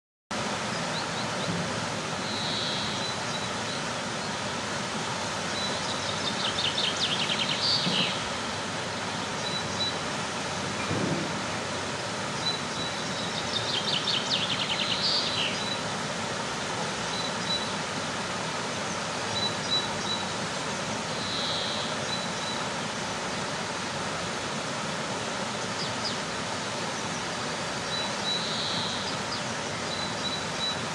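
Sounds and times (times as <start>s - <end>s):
waterfall rushing: 0.4s - 30.9s
songbird trilling: 2.2s - 3.8s, 12.4s - 15.8s, 21.2s - 22.6s, 27.9s - 30.8s.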